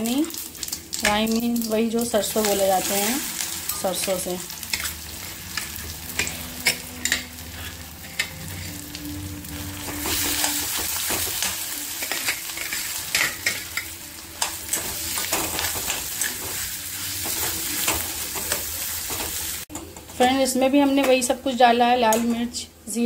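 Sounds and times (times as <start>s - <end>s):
food sizzling in oil: 0.0s - 21.6s
metal spoon scraping a pan: 2.4s - 9.0s, 9.6s - 19.6s.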